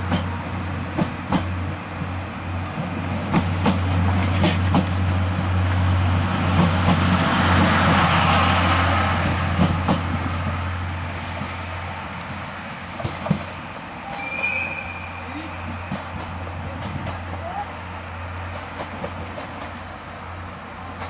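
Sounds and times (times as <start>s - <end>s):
train coaches rumbling past: 0.0s - 21.0s
wheels clicking over rail joints: 15.6s - 17.6s, 18.4s - 20.2s.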